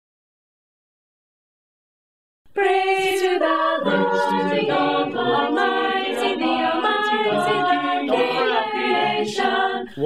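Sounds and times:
choir singing in harmony: 2.5s - 10.0s.

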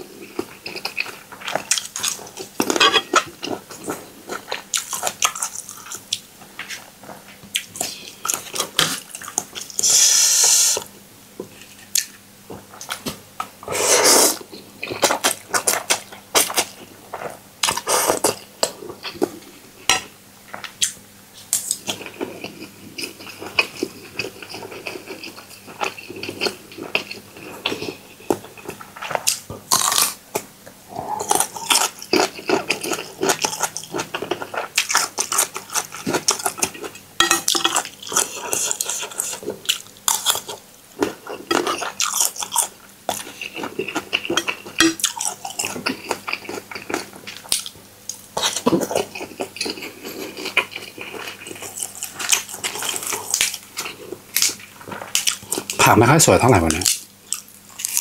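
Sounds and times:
food crunching: 0.1s - 10.9s, 14.2s - 55.9s, 56.5s - 58.0s
utensils clinking on dishes: 2.7s - 3.3s.

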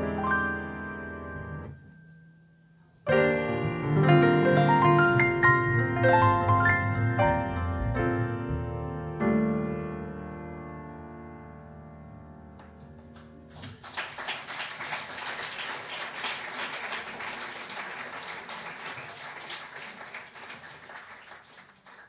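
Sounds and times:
piano bass and cymbal chord: 3.1s - 12.5s
audience applause: 13.2s - 22.0s.

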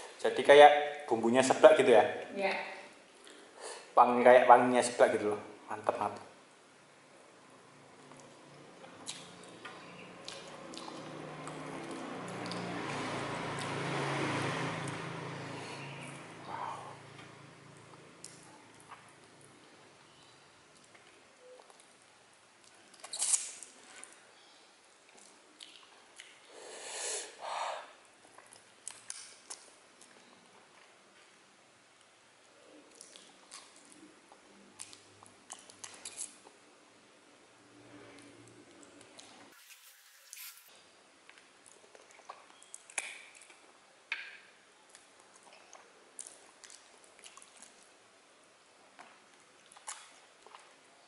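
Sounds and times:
wet clicks of lips and teeth: 8.0s - 12.7s, 22.6s - 23.7s, 28.3s - 30.2s, 32.9s - 36.5s, 41.3s - 44.2s, 49.0s - 50.8s
wet chewing and sucking: 8.0s - 13.0s, 22.6s - 24.2s, 39.2s - 40.7s, 41.3s - 43.7s, 44.9s - 47.9s, 49.0s - 50.8s
breath through nose: 26.5s - 28.0s.

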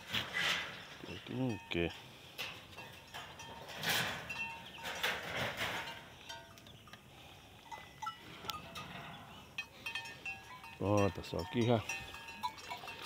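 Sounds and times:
tinkles: 5.8s - 13.0s.

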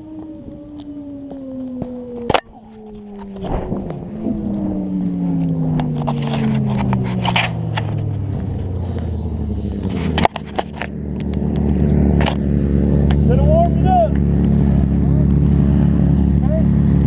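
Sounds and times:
motorcycle engine: 0.0s - 17.0s
scraping and clicking: 2.3s - 9.1s.

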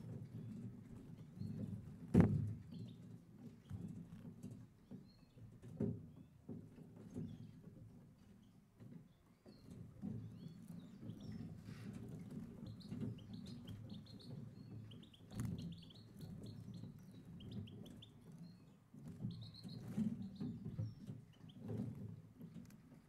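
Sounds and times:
finches chirping: 10.2s - 21.6s.

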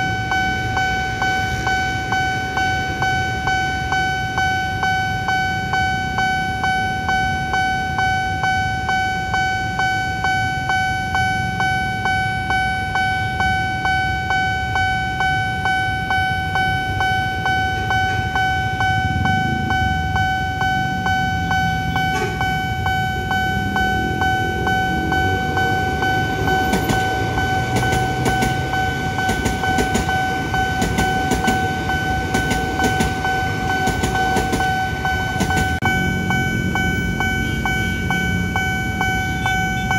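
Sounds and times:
crossing alarm ringing: 0.0s - 39.9s
train rushing rumble: 14.7s - 39.9s.

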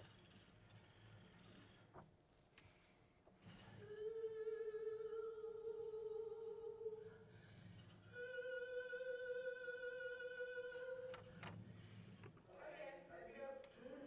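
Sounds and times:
woman singing over speakers: 8.1s - 11.1s.

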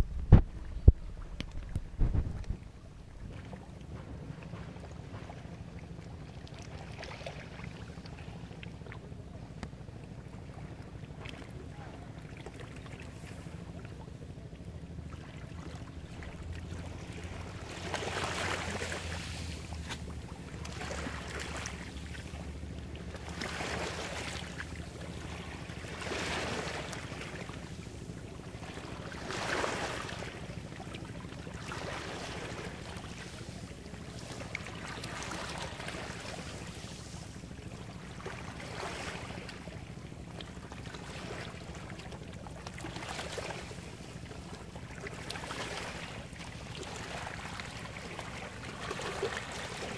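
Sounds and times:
low steady hum: 0.0s - 49.9s
small waves washing on beach: 16.1s - 49.9s.

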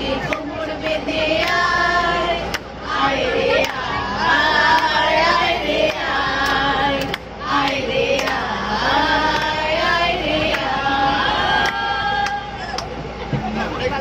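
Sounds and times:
women singing together: 0.0s - 13.1s
hands clapping: 0.3s - 1.6s, 3.6s - 3.8s, 5.9s - 8.4s, 11.6s - 12.9s.

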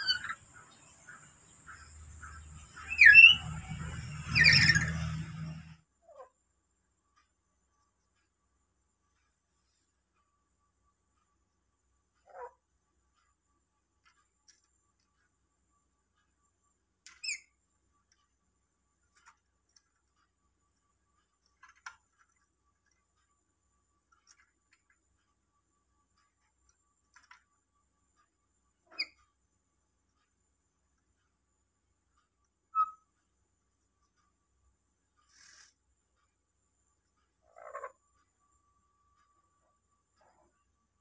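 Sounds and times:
parrot squawking: 0.0s - 0.4s, 2.8s - 5.2s, 32.8s - 33.0s.

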